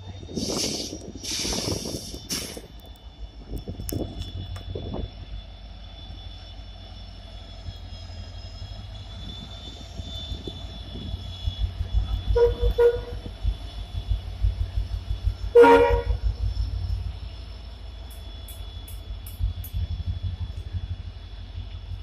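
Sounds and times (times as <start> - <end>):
diesel locomotive engine rumble: 0.0 - 22.0
faint high whine: 1.8 - 22.0
train horn: 9.3 - 13.4, 15.4 - 16.3.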